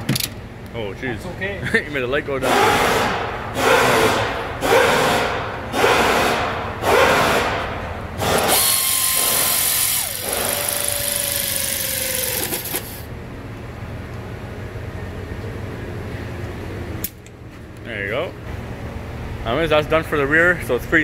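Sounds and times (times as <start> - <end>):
pneumatic air ratchet whining: 2.6 - 13.1.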